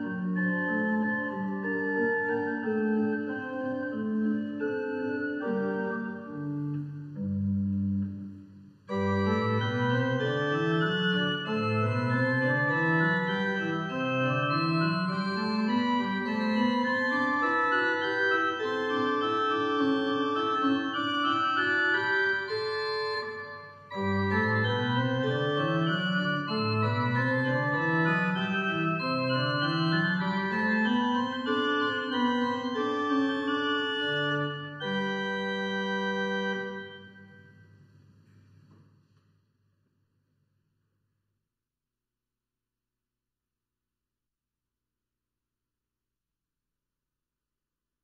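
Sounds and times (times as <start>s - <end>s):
church organ playing: 0.0s - 37.6s.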